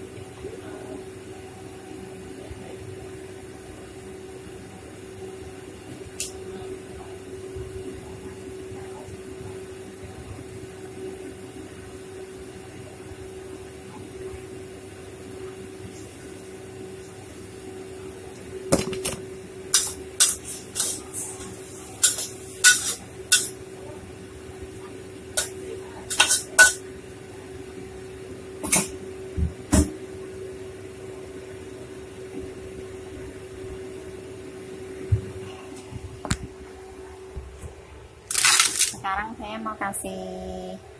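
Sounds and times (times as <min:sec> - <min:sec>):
steady hum: 0:00.0 - 0:40.9
metal cookware clanking on wok: 0:22.0 - 0:23.5.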